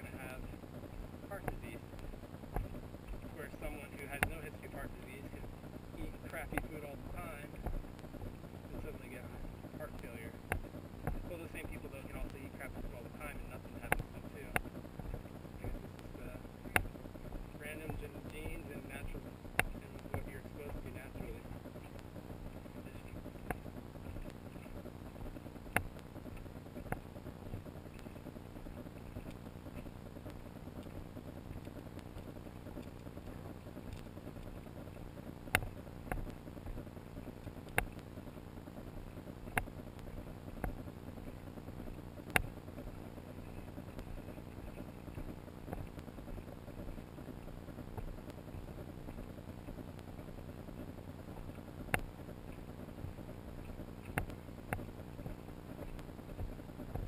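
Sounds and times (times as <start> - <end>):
wind and movement rumble: 0.0 - 57.0
sharp clicks and taps: 9.1 - 57.0.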